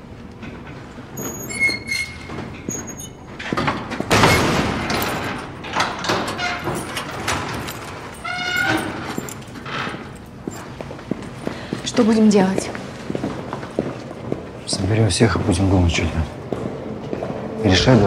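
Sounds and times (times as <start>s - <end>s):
hinges squealing: 0.8s - 3.5s, 4.1s - 10.8s
metal door clanging bang: 1.5s - 10.2s
metal latch knocks and rattles: 3.4s - 10.4s.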